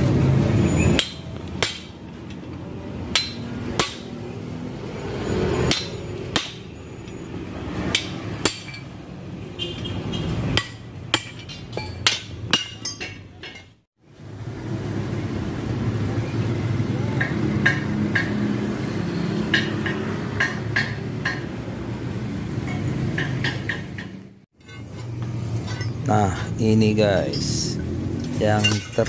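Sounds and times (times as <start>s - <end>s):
hammer striking metal punch: 0.8s - 4.2s, 5.6s - 6.8s, 7.8s - 8.9s, 10.5s - 13.7s, 19.4s - 21.6s.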